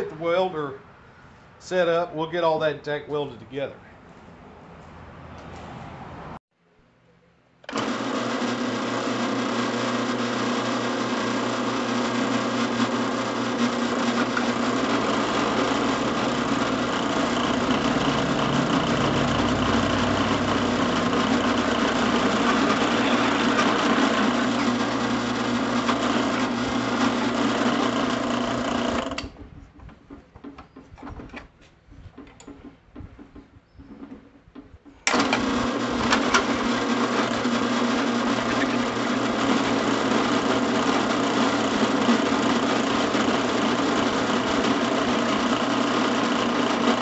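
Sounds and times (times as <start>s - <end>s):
drill press boring through metal: 7.7s - 29.3s, 35.1s - 47.0s.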